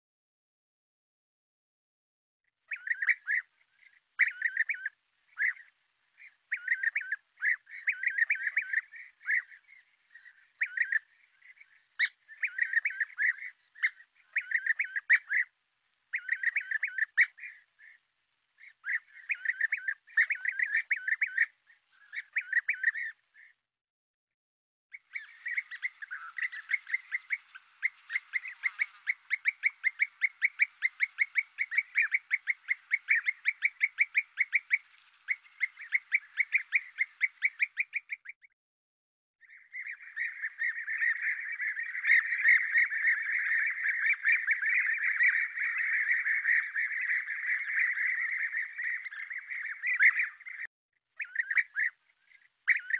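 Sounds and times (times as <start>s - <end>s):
birds trilling calls: 2.7s - 23.6s, 24.9s - 38.4s, 39.4s - 52.9s.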